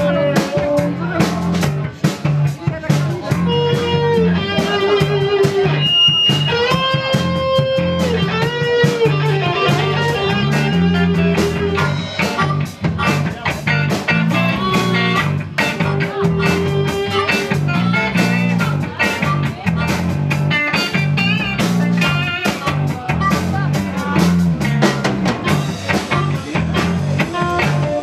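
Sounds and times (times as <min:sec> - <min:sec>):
bass guitar: 0:00.0 - 0:28.0
drums: 0:00.0 - 0:28.0
electric guitars: 0:00.0 - 0:28.0
harmonica bending notes: 0:03.3 - 0:28.0.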